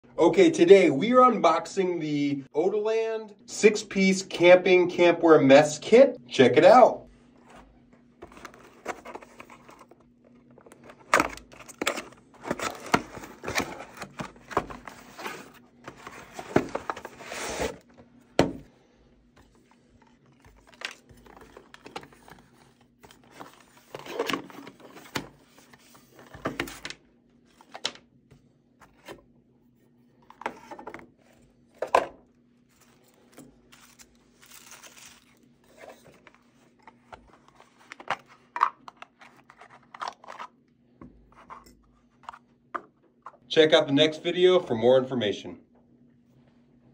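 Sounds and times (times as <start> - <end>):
packaging rustling: 7.4 - 17.9, 19.4 - 28.0, 32.6 - 40.5.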